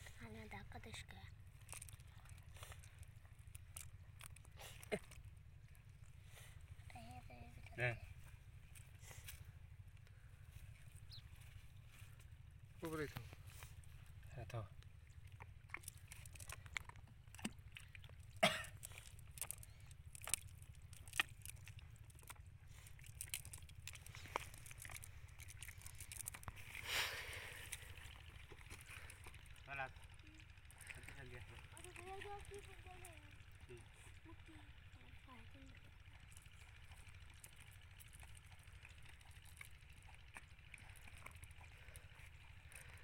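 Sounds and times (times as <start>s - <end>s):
low steady rumble: 0.0s - 43.0s
net crinkling and clicking: 23.0s - 26.6s.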